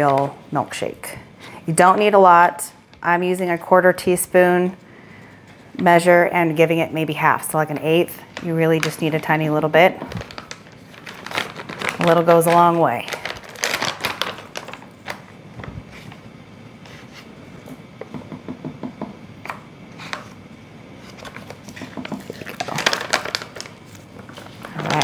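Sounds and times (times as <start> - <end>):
paper pouch rustling: 10.1 - 15.2.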